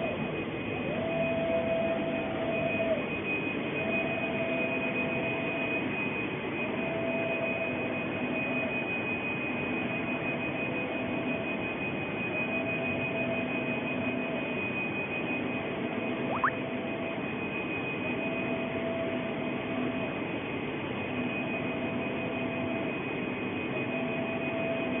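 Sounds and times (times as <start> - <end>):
constant high tone: 16.2 - 16.6
short rising whistle: 16.3 - 16.6.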